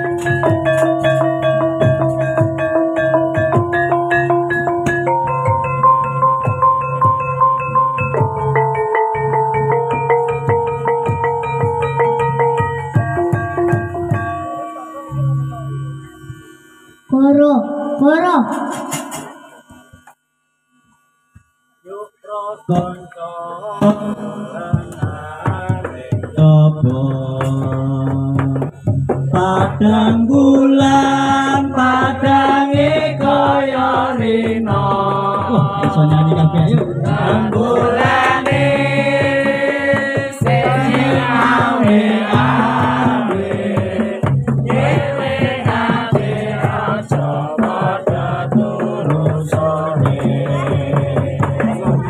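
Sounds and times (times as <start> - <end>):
musical accompaniment: 0.0 - 20.2, 22.7 - 52.0
voice chanting: 21.8 - 28.6, 29.3 - 45.4, 46.1 - 52.0.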